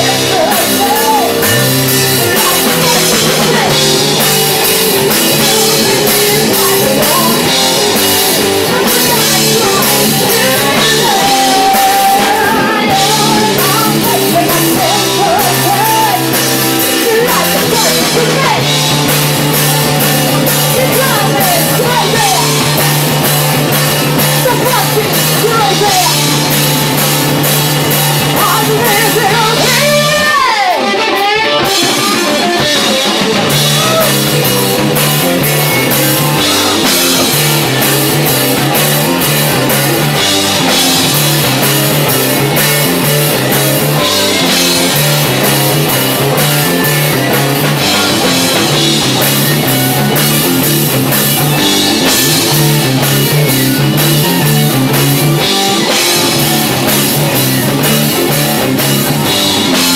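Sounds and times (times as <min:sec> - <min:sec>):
woman singing: 0:00.0 - 0:04.0, 0:05.4 - 0:18.8, 0:20.7 - 0:22.6, 0:24.4 - 0:26.2, 0:28.4 - 0:32.9
bass guitar: 0:00.0 - 0:59.9
drum kit: 0:00.0 - 0:59.9
electric guitars: 0:00.0 - 0:59.9.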